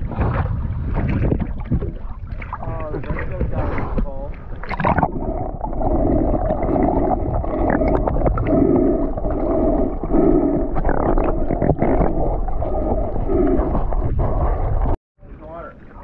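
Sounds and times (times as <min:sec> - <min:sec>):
low underwater rumble: 0:00.0 - 0:16.0
pulsing hum: 0:04.5 - 0:15.0.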